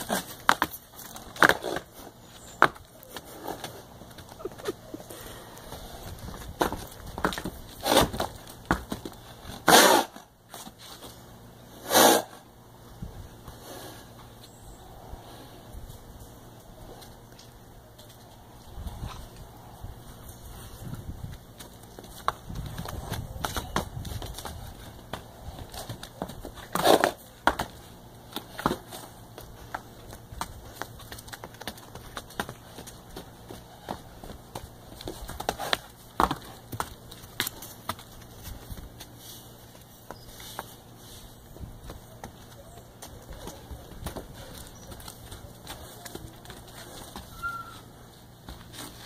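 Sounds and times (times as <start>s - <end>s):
horse hooves on dirt: 0.0s - 11.6s, 15.9s - 49.0s
horse snorting: 9.6s - 10.2s, 11.8s - 12.4s.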